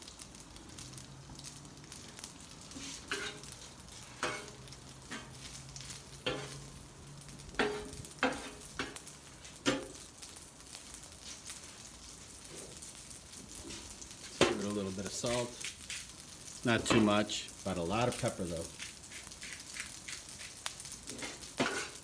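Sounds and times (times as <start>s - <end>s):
frying sizzle: 0.0s - 22.0s
metal spatula scraping on griddle: 2.7s - 6.8s, 7.6s - 10.0s, 18.6s - 22.0s.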